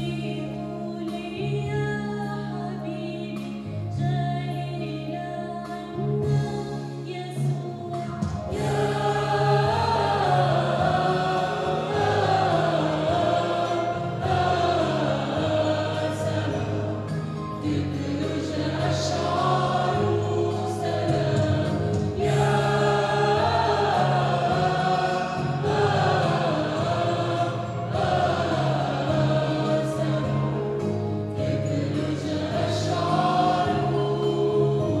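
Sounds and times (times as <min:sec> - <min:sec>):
held low accompanying notes: 0:07.4 - 0:35.0
mixed choir singing in harmony: 0:08.2 - 0:35.0.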